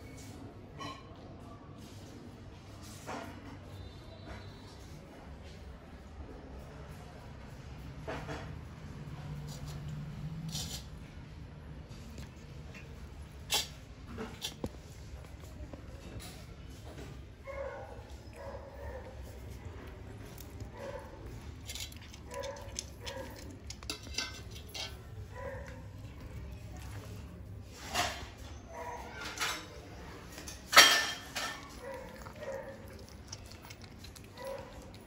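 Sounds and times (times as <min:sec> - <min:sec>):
cat chewing wet crunches: 0:18.1 - 0:27.4, 0:30.3 - 0:35.0.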